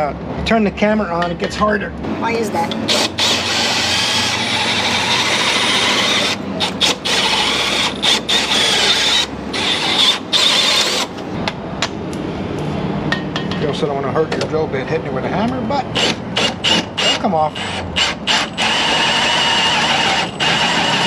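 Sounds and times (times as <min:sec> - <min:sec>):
cordless drill whining into metal: 0:02.9 - 0:11.1, 0:16.0 - 0:21.0.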